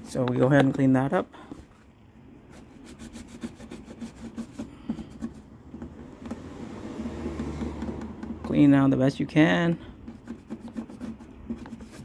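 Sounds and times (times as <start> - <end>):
scraping and rubbing rubber residue: 1.5 - 8.5, 9.8 - 12.0.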